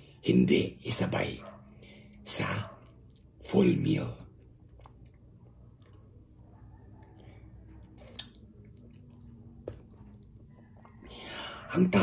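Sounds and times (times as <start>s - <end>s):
low steady hum: 0.0s - 11.7s
faint chewing: 4.2s - 11.7s.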